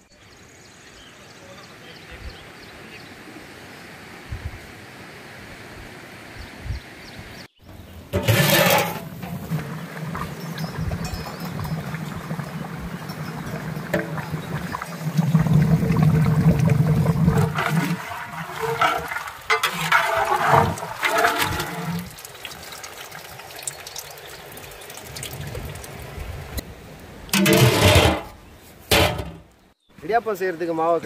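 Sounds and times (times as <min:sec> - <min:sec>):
curry boiling and bubbling: 0:07.6 - 0:26.6
ladle stirring thick curry: 0:17.2 - 0:22.0.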